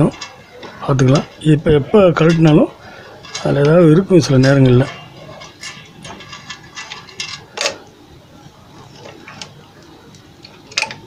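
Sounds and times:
clicks of hand tools and wiring: 0:09.0 - 0:11.0.

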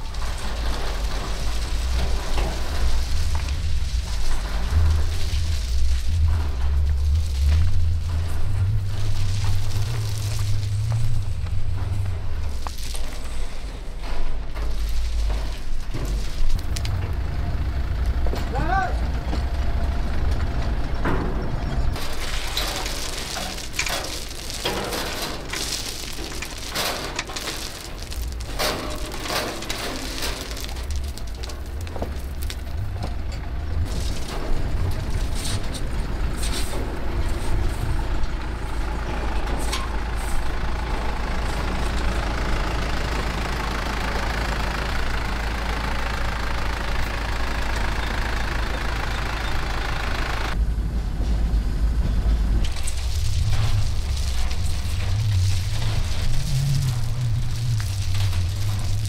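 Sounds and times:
truck engine running: 0:00.0 - 0:59.0
stones clattering: 0:22.0 - 0:37.8, 0:52.7 - 0:59.0.

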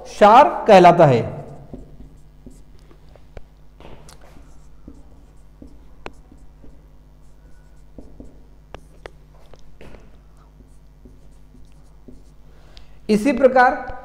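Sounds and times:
steady low hum: 0:00.0 - 0:14.0
marker pen writing on whiteboard: 0:01.2 - 0:14.0
marker tip tapping board: 0:01.5 - 0:12.4.

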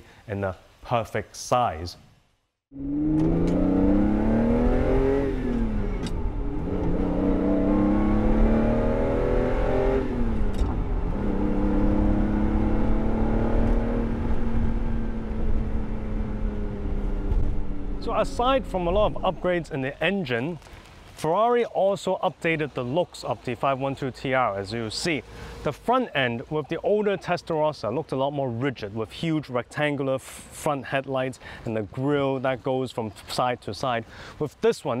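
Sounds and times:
car engine accelerating through gears: 0:02.7 - 0:18.6.

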